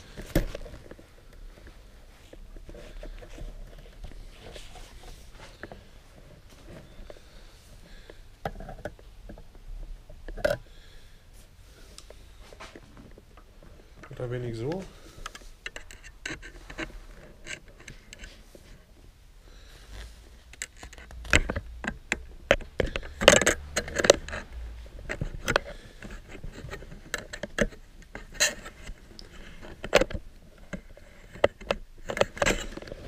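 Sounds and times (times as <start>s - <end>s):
metal spoke scraping and clicking: 14.0s - 18.4s, 20.5s - 33.0s.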